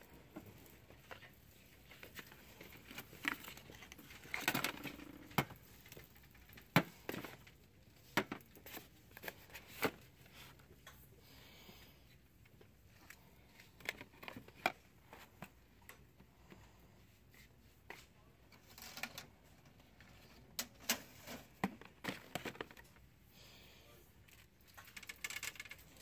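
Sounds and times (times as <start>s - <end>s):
boxes and bottles clicking and knocking: 0.1s - 10.1s, 20.7s - 23.0s.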